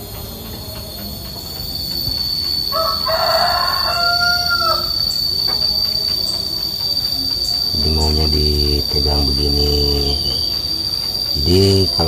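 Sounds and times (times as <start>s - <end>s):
high-pitched whine: 0.0s - 12.0s
rooster crowing: 2.3s - 6.4s.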